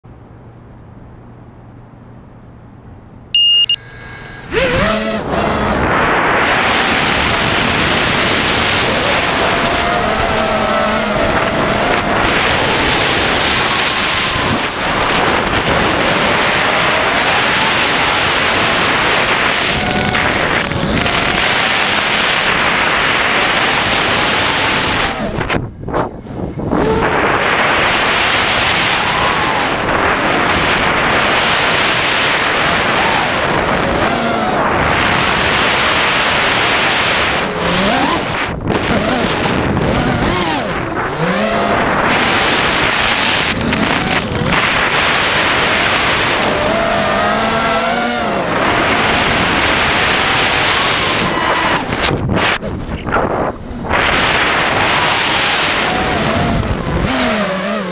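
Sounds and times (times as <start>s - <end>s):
short electronic beep: 3.3s - 4.0s
drone motors whining: 3.4s - 25.4s
wind rushing: 4.0s - 57.9s.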